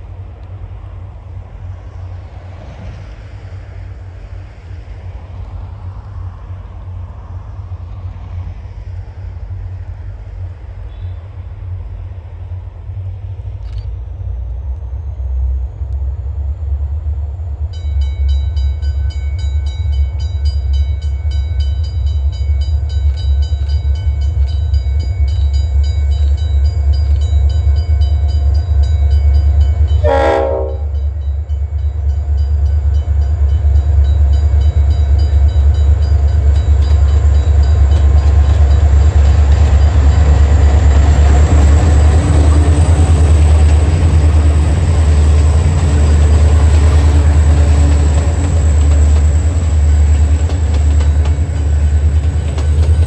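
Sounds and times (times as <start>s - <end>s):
constant low rumble: 0.0s - 53.0s
diesel train passing: 0.0s - 53.0s
locomotive horn blast: 30.0s - 31.2s.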